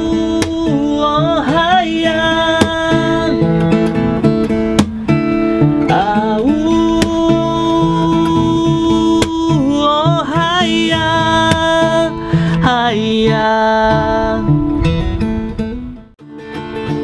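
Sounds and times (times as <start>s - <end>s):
man singing: 0.0s - 4.0s, 5.8s - 15.1s
acoustic guitar strummed: 0.0s - 17.0s.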